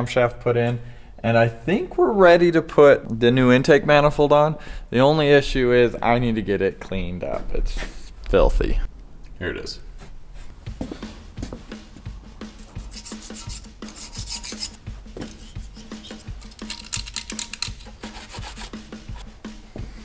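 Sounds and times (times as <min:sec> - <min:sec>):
scrubbing metal part by hand: 0:12.4 - 0:19.3.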